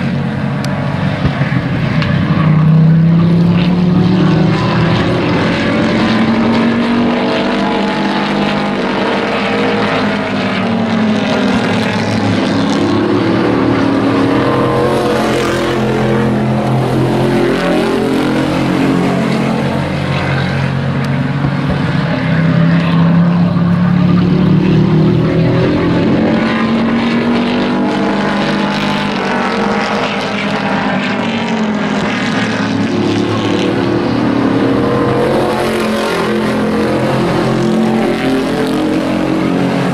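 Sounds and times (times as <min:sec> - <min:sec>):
racing truck engines accelerating: 0:00.0 - 0:39.9.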